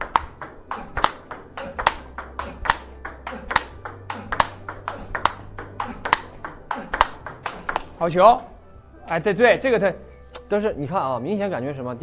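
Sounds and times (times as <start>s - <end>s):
table tennis ball clicks: 0.0s - 8.5s.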